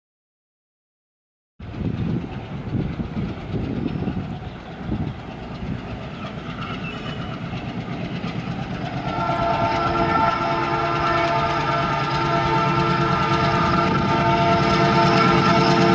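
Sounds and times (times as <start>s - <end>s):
locomotive engine chugging: 1.6s - 15.9s
train horn chord: 8.8s - 15.9s.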